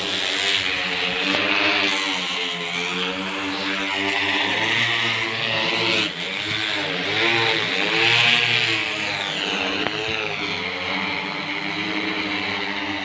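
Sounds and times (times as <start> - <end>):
drone propeller buzz: 0.0 - 13.0.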